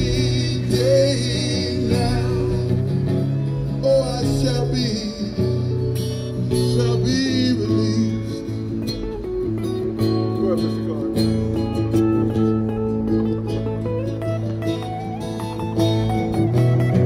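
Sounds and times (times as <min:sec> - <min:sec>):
man singing into a microphone: 0:00.0 - 0:08.8
acoustic guitar strumming: 0:00.0 - 0:17.0
second guitar playing: 0:00.0 - 0:17.0.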